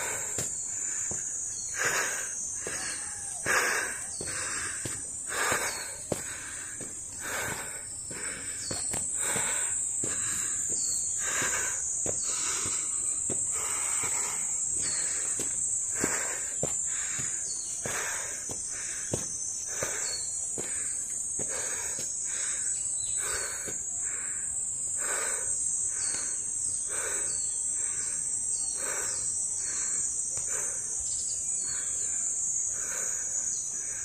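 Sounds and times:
heavy breathing: 0.0s - 34.0s
insects droning: 0.0s - 34.0s
footsteps on stone: 0.2s - 22.2s.

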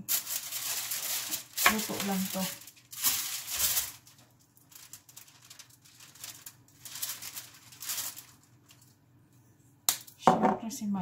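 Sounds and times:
foil crinkling: 0.0s - 9.0s.

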